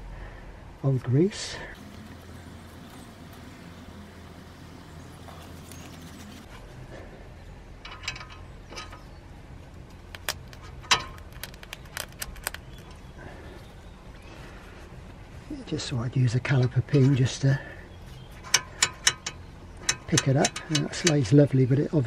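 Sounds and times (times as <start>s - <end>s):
low hum: 0.0s - 16.9s.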